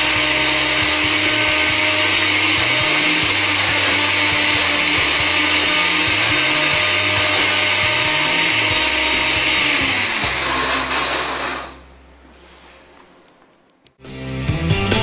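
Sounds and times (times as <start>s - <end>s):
blender running: 0.0s - 11.9s.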